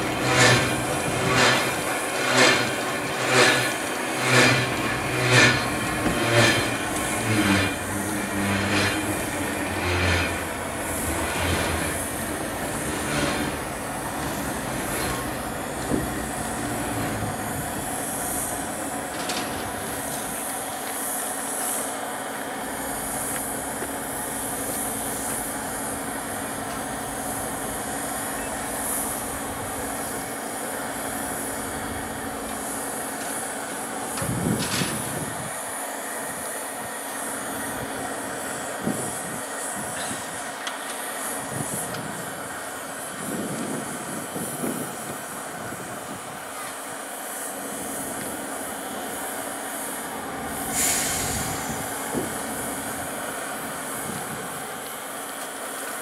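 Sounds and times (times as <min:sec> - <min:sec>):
mechanical hum: 0:00.0 - 0:46.6
high hiss: 0:35.4 - 0:56.0.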